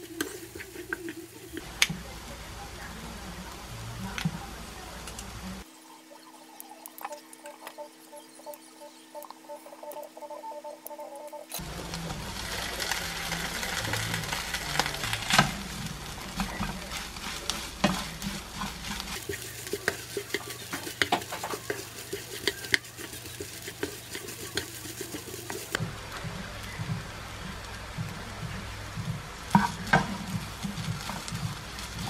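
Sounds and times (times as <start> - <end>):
spatula scraping pan: 0.0 - 1.7, 11.6 - 25.8
fried rice sizzling in pan: 0.0 - 7.9, 11.6 - 32.0.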